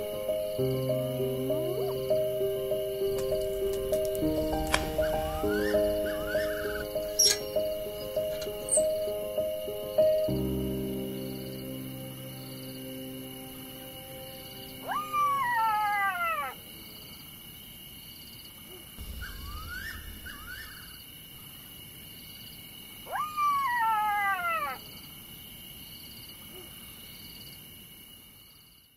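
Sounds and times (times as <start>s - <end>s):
insect drone: 0.0s - 28.9s
wild animal howling: 1.2s - 9.0s, 13.0s - 16.7s, 23.1s - 24.8s.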